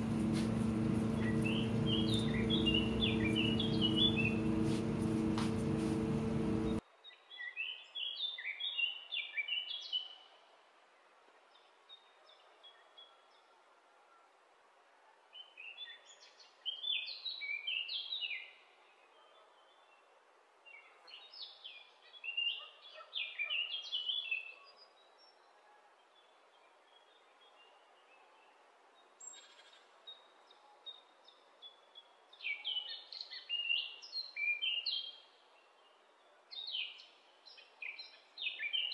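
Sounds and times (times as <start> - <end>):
loud steady sound: 0.0 - 6.8
bird chirping: 0.0 - 10.1.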